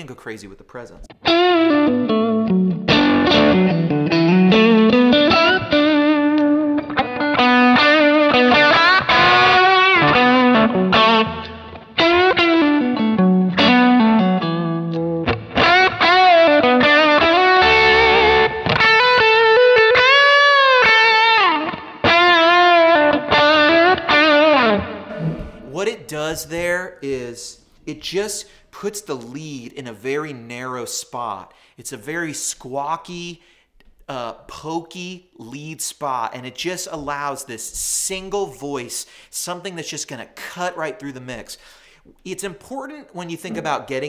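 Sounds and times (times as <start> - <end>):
overdriven electric guitar lead: 1.1 - 25.7.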